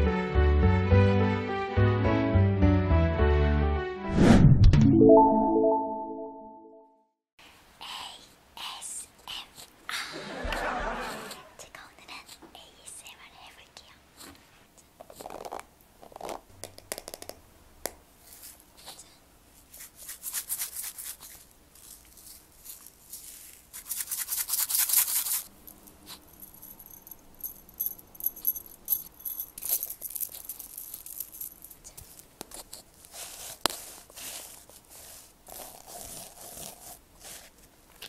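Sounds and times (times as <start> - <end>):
hairbrush bristles scratching: 19.7 - 26.3, 32.0 - 37.7
scratchy rubbing of sequins: 19.7 - 27.0, 29.6 - 37.7.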